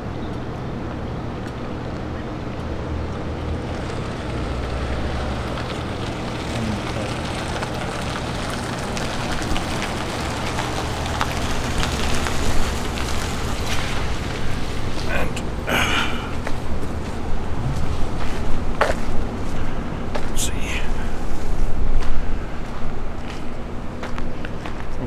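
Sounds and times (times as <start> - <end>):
crackles and ticks: 0.3 - 15.1.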